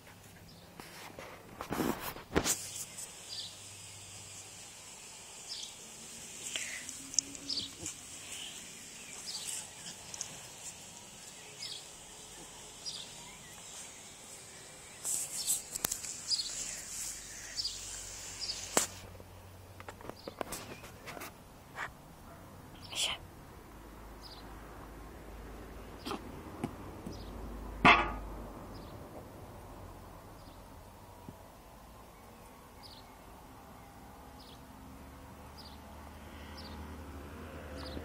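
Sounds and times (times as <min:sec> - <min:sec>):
faint high hiss: 0:00.0 - 0:26.3
birds chirping: 0:02.6 - 0:18.8, 0:24.2 - 0:24.5, 0:27.0 - 0:27.4, 0:32.0 - 0:34.7, 0:35.5 - 0:36.9.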